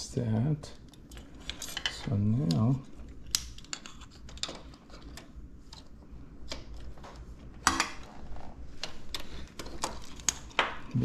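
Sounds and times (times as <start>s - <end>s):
metal parts clicking and clinking: 0.9s - 5.8s.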